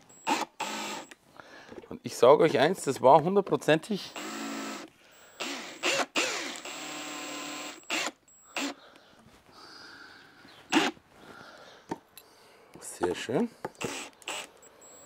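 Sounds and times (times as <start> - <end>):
cordless drill motor whirring: 0.1 - 1.2, 4.1 - 8.8, 10.7 - 11.0, 13.8 - 15.0.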